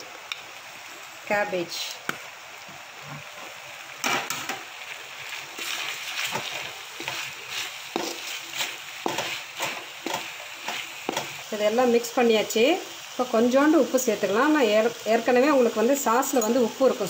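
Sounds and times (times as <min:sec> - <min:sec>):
vegetables sizzling in a wok: 0:00.0 - 0:17.0
wooden spatula scraping pan: 0:05.2 - 0:11.3.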